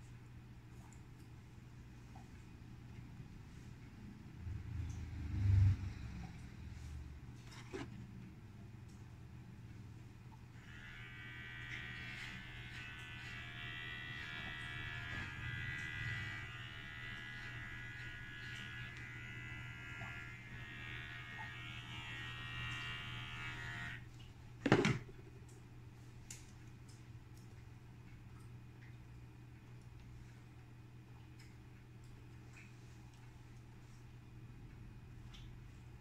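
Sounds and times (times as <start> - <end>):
electric hair clipper buzzing: 10.5 - 24.1.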